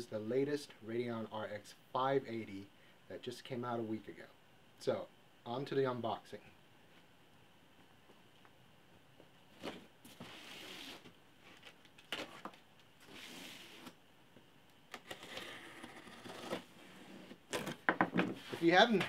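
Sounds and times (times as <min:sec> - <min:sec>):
box cutter slitting packing tape: 0:14.9 - 0:16.6.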